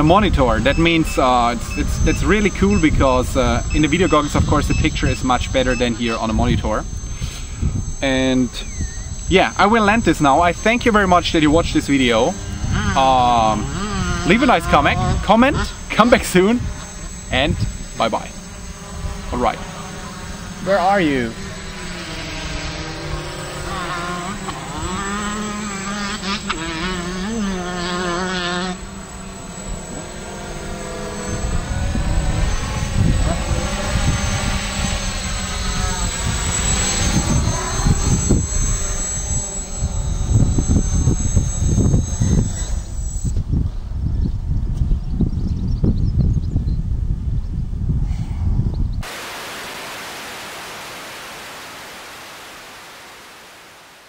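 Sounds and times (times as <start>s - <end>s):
drone motors whining: 0.0s - 43.9s, 49.0s - 54.0s
video receiver static hiss: 49.0s - 54.0s.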